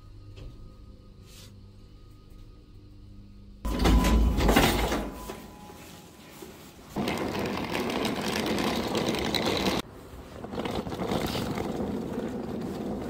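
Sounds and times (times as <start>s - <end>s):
suitcase rolling on pavement: 6.9s - 13.0s
suitcase wheels rolling on wood: 7.0s - 13.0s.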